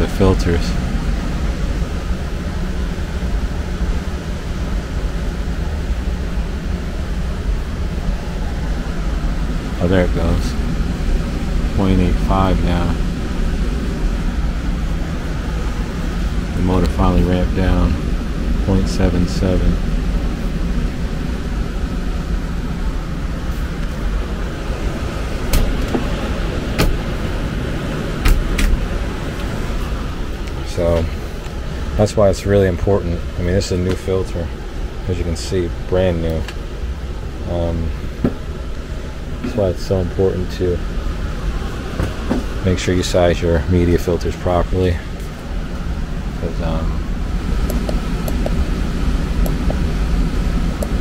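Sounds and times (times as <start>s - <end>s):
air handler blower running: 0.0s - 51.0s
sharp knocks: 26.8s - 27.0s.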